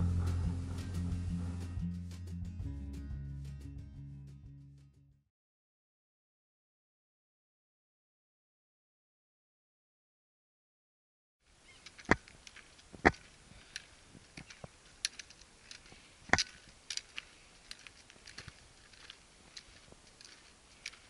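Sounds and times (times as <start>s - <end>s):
trekking poles clicking on stones: 11.7s - 21.0s.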